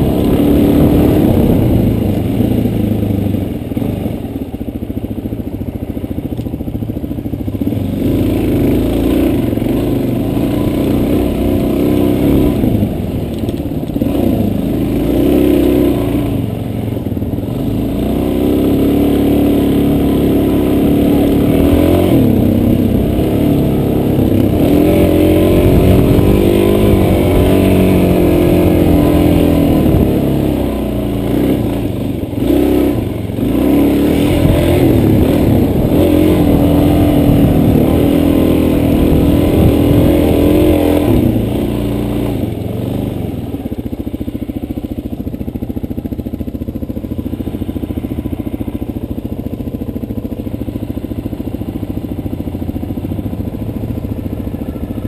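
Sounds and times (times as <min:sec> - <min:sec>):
off-road vehicle engine revving: 0:00.0 - 0:04.6, 0:07.6 - 0:46.8.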